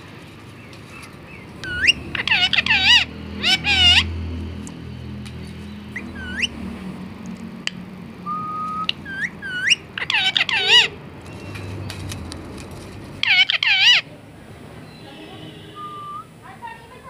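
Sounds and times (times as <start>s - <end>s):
parakeet wavering calls: 1.3s - 4.3s, 5.9s - 6.7s, 8.2s - 11.0s, 13.2s - 14.1s, 15.7s - 16.3s
parakeet whistling: 1.6s - 4.1s, 5.9s - 6.6s, 8.2s - 10.9s, 15.7s - 16.3s.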